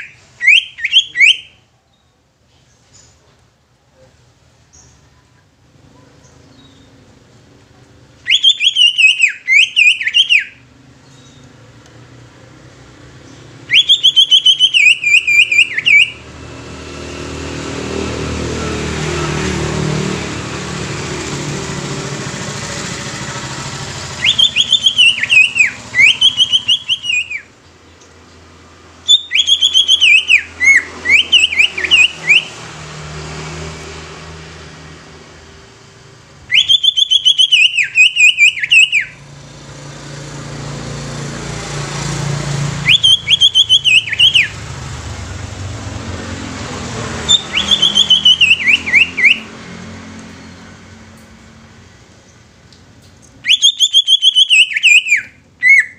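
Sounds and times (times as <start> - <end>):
bird singing whistled notes: 0.0 - 2.2, 8.2 - 11.5, 13.3 - 16.2, 24.1 - 28.0, 29.0 - 32.6, 36.5 - 39.2, 42.8 - 44.6, 47.3 - 49.5, 53.2 - 55.9
passing vehicle rumble: 10.5 - 55.9.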